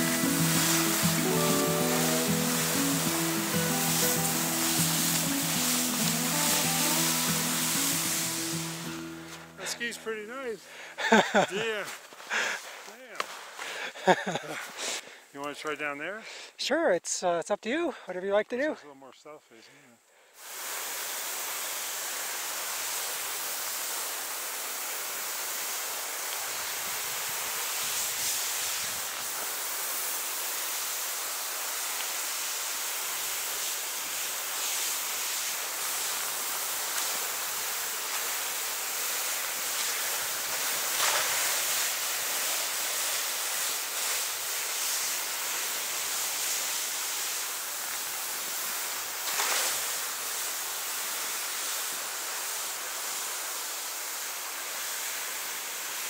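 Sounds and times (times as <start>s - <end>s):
ski turn swooshes: 0.0s - 10.5s, 34.6s - 47.4s
skis hissing through powder snow: 0.0s - 15.9s, 20.4s - 56.0s.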